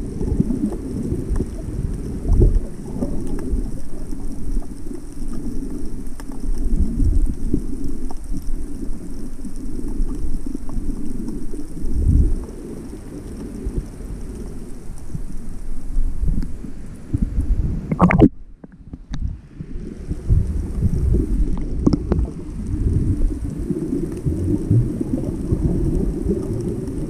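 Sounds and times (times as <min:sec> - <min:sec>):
muffled underwater rumble: 0:00.0 - 0:27.0
faint clicks: 0:00.6 - 0:17.3, 0:21.4 - 0:27.0
water sloshing against camera housing: 0:17.9 - 0:19.3.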